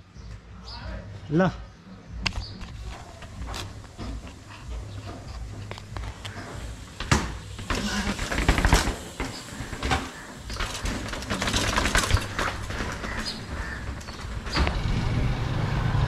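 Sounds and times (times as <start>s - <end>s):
bike tyres clattering down steps: 2.7s - 14.9s.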